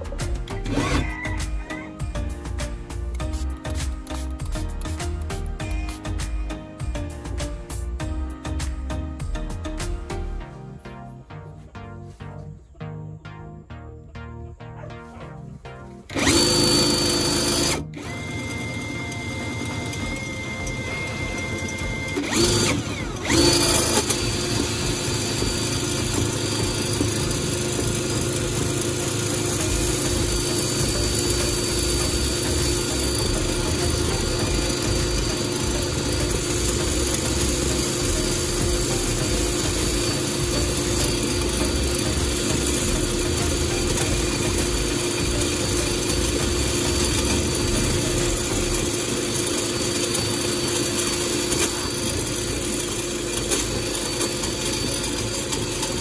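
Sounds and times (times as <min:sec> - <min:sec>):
small power tool motor humming: 0:16.1 - 0:56.0.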